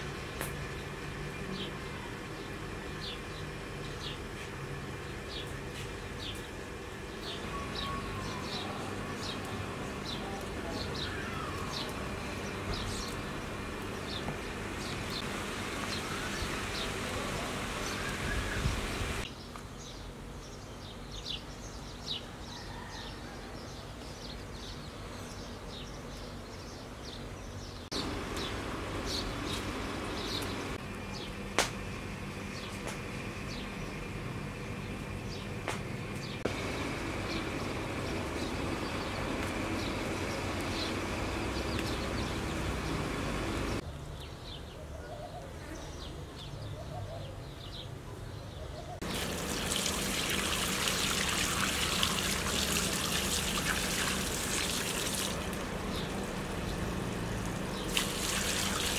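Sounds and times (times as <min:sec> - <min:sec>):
insects humming: 0:00.0 - 0:21.1, 0:27.9 - 0:43.8, 0:49.0 - 0:58.9
small birds chirping: 0:00.3 - 0:31.4, 0:32.4 - 0:58.9.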